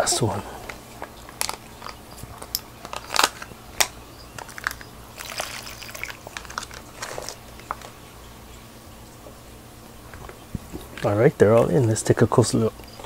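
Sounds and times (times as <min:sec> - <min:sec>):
plastic bag crinkling: 0:00.7 - 0:08.0.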